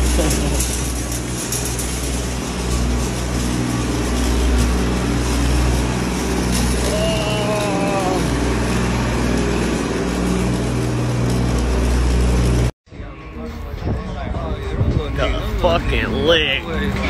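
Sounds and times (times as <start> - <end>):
shopping cart rattling on concrete: 0.0 - 12.7.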